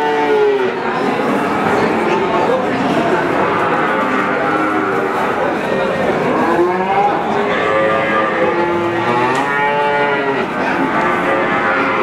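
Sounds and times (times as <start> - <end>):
calves mooing: 3.4 - 5.4, 6.4 - 12.0.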